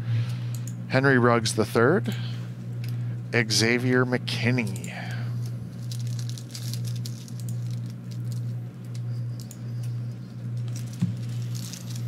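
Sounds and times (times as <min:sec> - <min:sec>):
steady low hum: 0:00.0 - 0:12.0
plastic wrapper crinkling and tearing: 0:05.7 - 0:08.6, 0:10.6 - 0:12.0.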